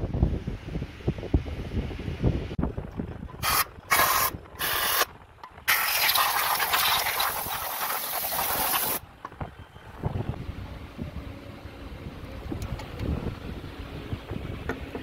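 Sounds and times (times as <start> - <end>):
aerosol spray can hissing: 5.7 - 9.0.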